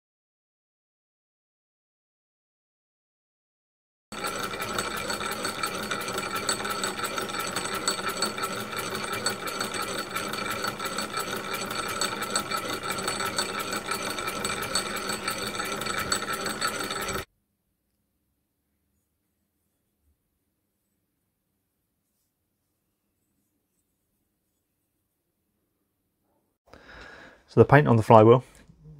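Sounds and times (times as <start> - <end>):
model engine clattering: 4.1 - 17.3.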